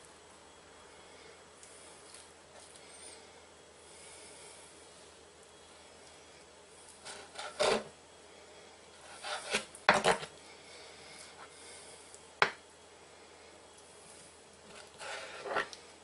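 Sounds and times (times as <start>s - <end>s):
knife scraping cutting board: 7.0s - 7.9s, 9.0s - 10.3s, 14.7s - 15.8s.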